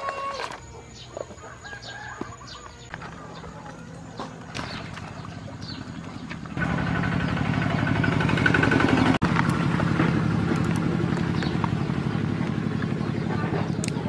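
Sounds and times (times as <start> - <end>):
small engine running: 4.8 - 14.0.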